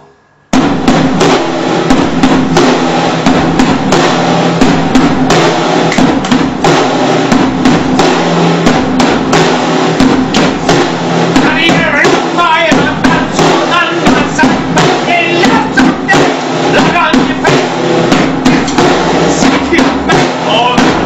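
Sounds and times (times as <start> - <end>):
drum kit with crash cymbals: 0.0 - 21.0
count-in: 0.6 - 21.0.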